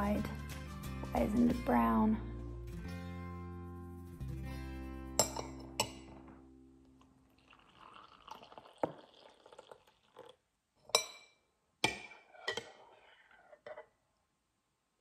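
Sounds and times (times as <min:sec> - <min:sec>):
spoon stirring and clinking: 0:05.2 - 0:06.2, 0:10.9 - 0:13.9
water pouring into a cup: 0:07.2 - 0:10.4.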